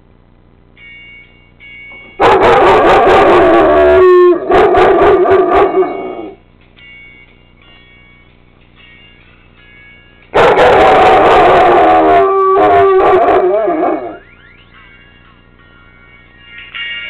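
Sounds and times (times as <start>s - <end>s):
dog howling loudly: 2.2s - 6.4s, 10.4s - 14.2s.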